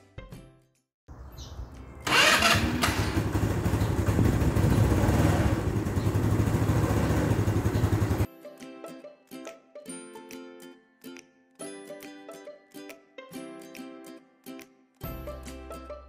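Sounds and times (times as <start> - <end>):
scooter engine starting and idling: 1.9 - 8.3.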